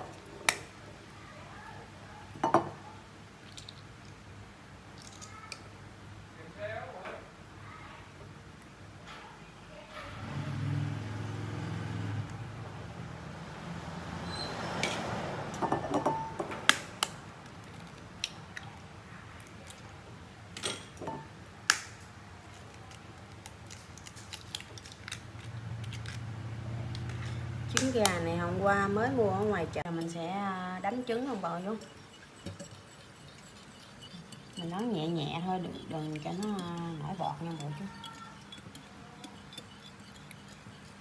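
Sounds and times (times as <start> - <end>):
eggshells cracking on bowl: 5.0 - 5.6, 21.7 - 26.2.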